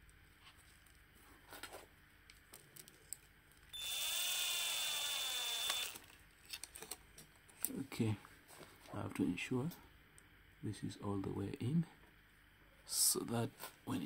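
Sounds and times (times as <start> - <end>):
electric drill motor whine: 3.7 - 6.0.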